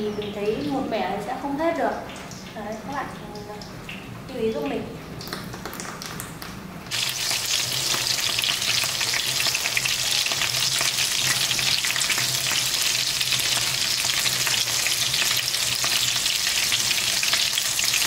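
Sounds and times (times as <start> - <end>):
food sizzling in hot oil: 6.9 - 18.0.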